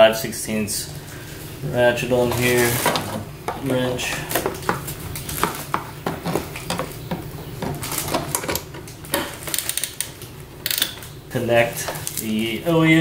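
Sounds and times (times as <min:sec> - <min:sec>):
ratchet wrench clicking: 0:09.5 - 0:11.0.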